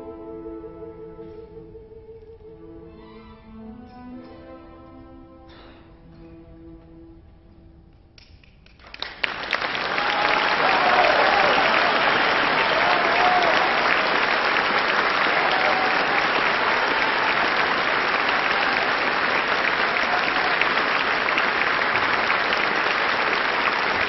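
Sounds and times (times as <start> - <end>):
audience applause: 8.6 - 24.0.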